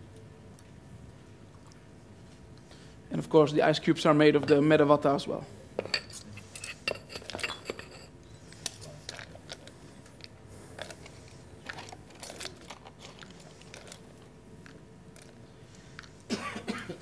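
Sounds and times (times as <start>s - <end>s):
glassware and utensils clinking: 5.8s - 8.1s.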